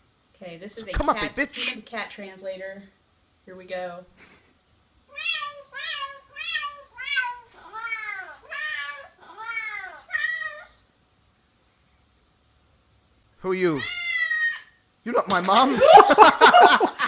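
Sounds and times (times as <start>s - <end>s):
cat meowing: 5.1s - 10.8s, 13.8s - 14.8s.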